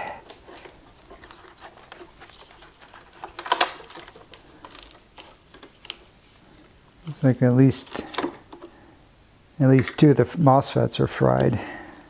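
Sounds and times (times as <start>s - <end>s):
screwdriver clicking and scraping: 0.5s - 6.0s.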